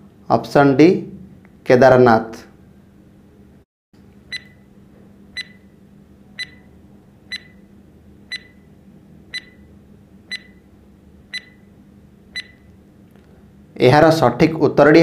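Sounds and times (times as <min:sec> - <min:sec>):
electronic tick-beeps: 0:05.4 - 0:05.6, 0:06.4 - 0:06.6, 0:07.3 - 0:07.6, 0:08.3 - 0:08.6, 0:09.3 - 0:09.6, 0:10.3 - 0:10.6, 0:11.3 - 0:11.6, 0:12.4 - 0:12.7.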